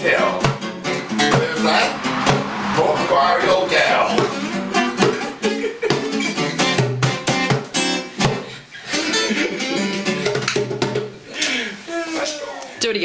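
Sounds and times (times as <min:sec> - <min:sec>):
acoustic guitar strummed and picked: 0:00.0 - 0:01.9, 0:03.1 - 0:11.2.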